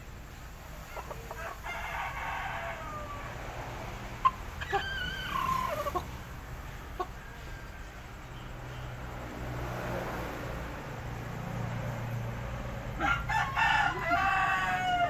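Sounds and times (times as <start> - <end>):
rooster crowing: 0.9 - 6.1, 12.9 - 15.0.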